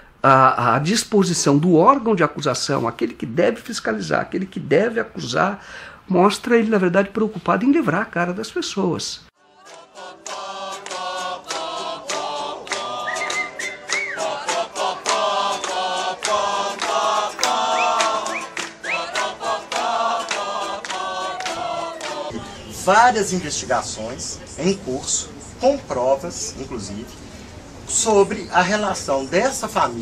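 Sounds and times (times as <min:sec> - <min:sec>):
group of people singing: 0:09.4 - 0:23.2
acoustic guitar strumming: 0:10.1 - 0:22.9.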